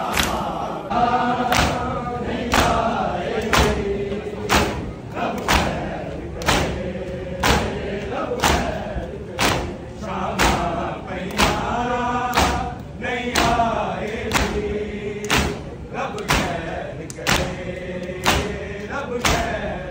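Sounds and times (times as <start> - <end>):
men chanting in chorus: 0.0 - 19.9
hands slapping chests: 1.5 - 1.8, 3.4 - 3.8, 4.4 - 6.8, 7.4 - 8.8, 9.4 - 18.6.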